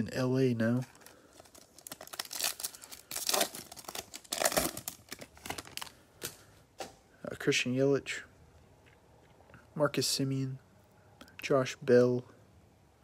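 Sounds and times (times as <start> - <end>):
wrapper tearing and crinkling: 0.8 - 6.4.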